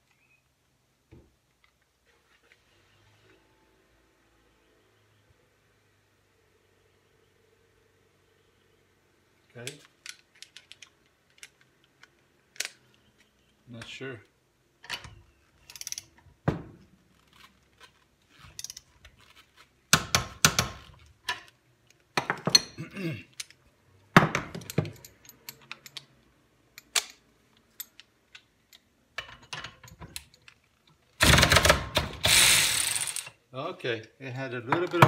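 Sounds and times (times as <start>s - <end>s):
metal tools clinking: 24.5s - 26.1s
cordless ratchet running: 32.2s - 33.3s.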